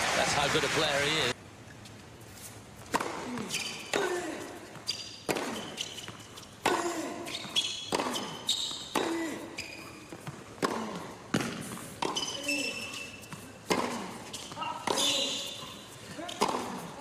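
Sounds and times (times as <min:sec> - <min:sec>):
racket hitting tennis ball: 0:02.8 - 0:17.0
ball bouncing on court: 0:02.9 - 0:04.2, 0:04.8 - 0:17.0
shoe squeaks: 0:03.3 - 0:10.4, 0:11.5 - 0:17.0.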